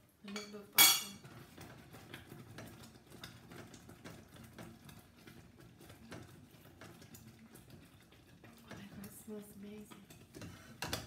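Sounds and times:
metal spoon clinking saucepan: 0.3s - 1.2s.

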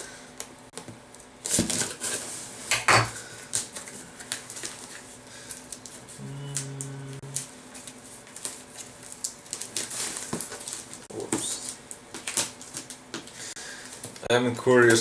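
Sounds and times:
person humming low note: 6.2s - 7.5s.

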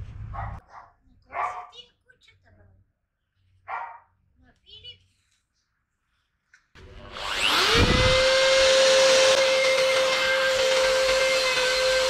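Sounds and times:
electric router motor whining: 6.8s - 12.0s.

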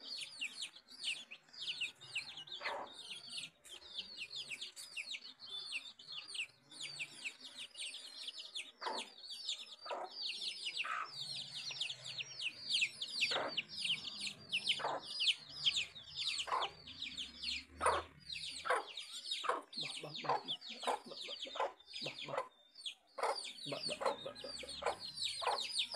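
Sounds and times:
beaks tapping on concrete: 0.0s - 25.9s
chicks peeping: 0.0s - 25.9s
hen clucking softly: 17.8s - 22.5s, 23.2s - 25.9s.

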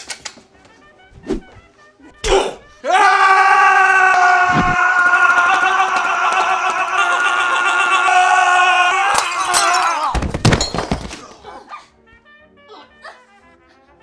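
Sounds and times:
man screaming: 2.8s - 10.2s.

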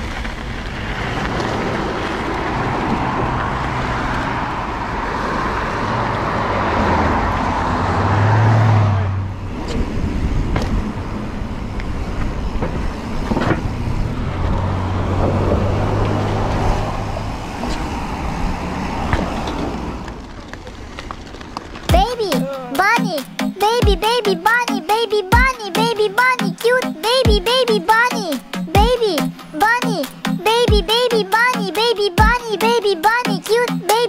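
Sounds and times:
bike tyres crunching on gravel: 0.0s - 6.1s, 19.1s - 21.9s
tyres rolling on pavement: 0.0s - 34.0s
wind noise on camera: 9.5s - 18.6s.

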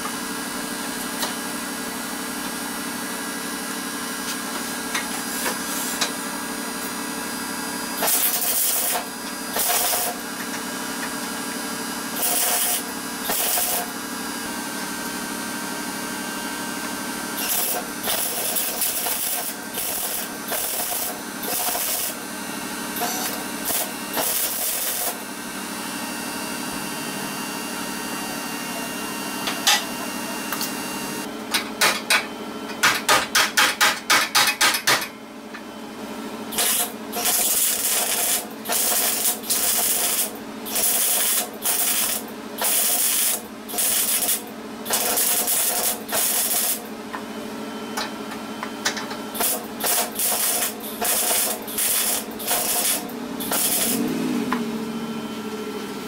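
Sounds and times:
rapid short welding zaps: 8.0s - 10.2s, 12.2s - 13.9s, 17.4s - 22.2s, 23.0s - 25.2s, 36.5s - 46.9s, 49.4s - 54.0s
welder crackling bursts: 8.0s - 10.2s, 12.2s - 13.9s, 17.4s - 22.2s, 23.2s - 25.2s, 36.6s - 46.9s, 49.4s - 54.1s
welder low hum: 16.8s - 31.3s, 49.4s - 56.0s.

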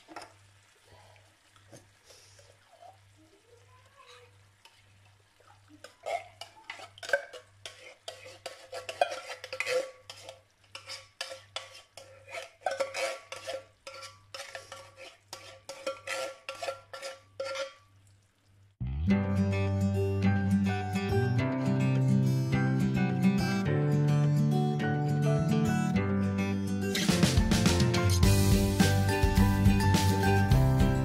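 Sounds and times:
metal spoon scraping a tin: 5.8s - 17.8s.

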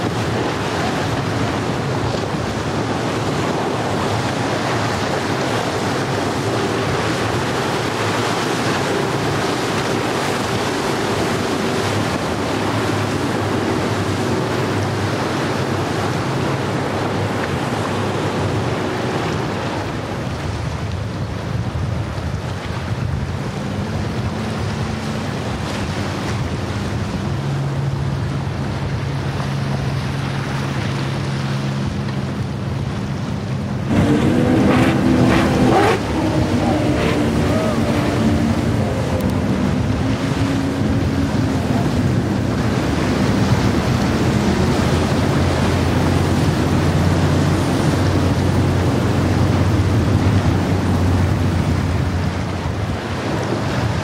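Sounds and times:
boat engines droning: 0.0s - 54.0s
rush of wake and surf: 0.0s - 54.0s
wind buffeting microphone: 0.0s - 54.0s
high-pitched engine sound: 33.9s - 43.6s.

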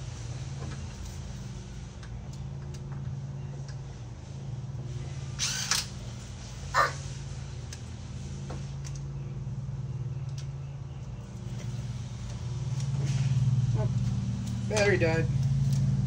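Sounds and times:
small motor humming: 5.2s - 6.0s.

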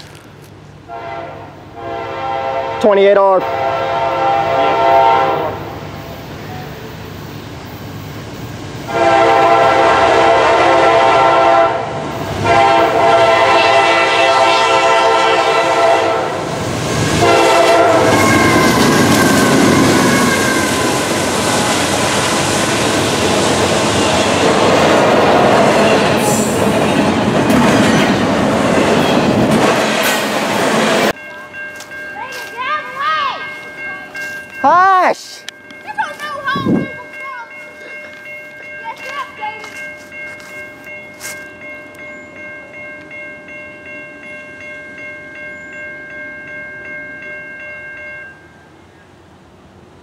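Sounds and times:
train rumble and clatter on rails: 0.0s - 50.0s
locomotive horn blasts: 0.9s - 5.8s, 8.9s - 16.4s, 17.2s - 21.0s.

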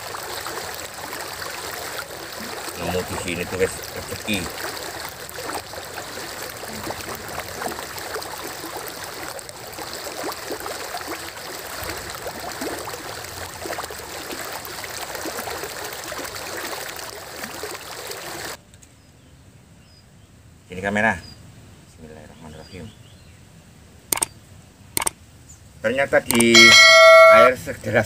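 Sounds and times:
river water rushing: 0.0s - 18.6s.

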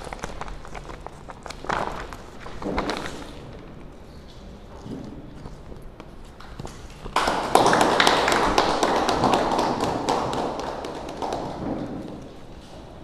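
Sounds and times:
people clapping: 7.0s - 12.5s.

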